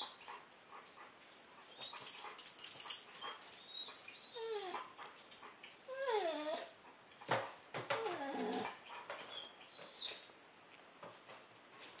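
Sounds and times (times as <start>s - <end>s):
dog whining: 3.6s - 4.9s, 5.8s - 6.8s, 7.9s - 10.2s.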